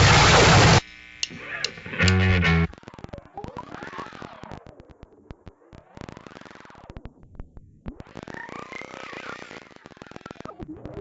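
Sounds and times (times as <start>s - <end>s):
loud distorted chord: 0.0s - 2.7s
glitchy clicks and crackles: 0.0s - 11.0s.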